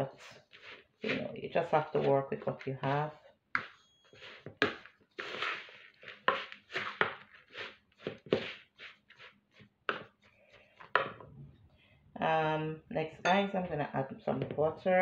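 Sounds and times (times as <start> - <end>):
spatula scraping plastic bowl: 0.0 - 11.3.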